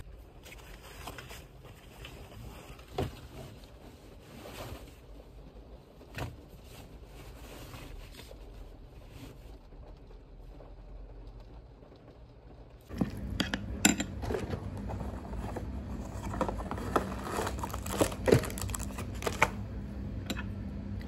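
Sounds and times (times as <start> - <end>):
canvas bags rustling: 14.2 - 19.7.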